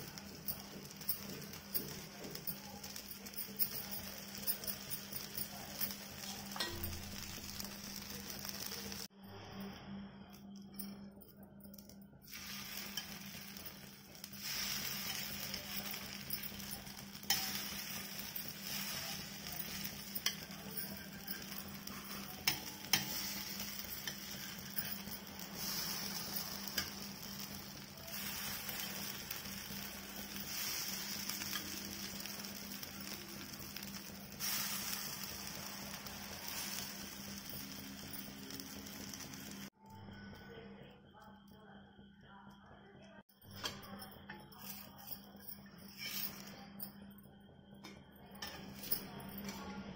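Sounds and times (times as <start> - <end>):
batter sizzling in oil: 0.0 - 9.1, 12.2 - 39.8.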